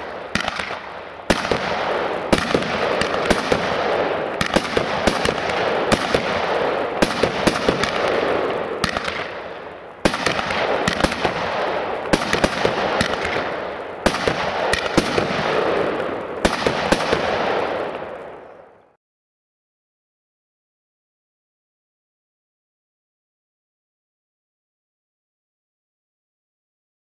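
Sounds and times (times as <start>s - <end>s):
firework cracks: 0.0s - 18.8s.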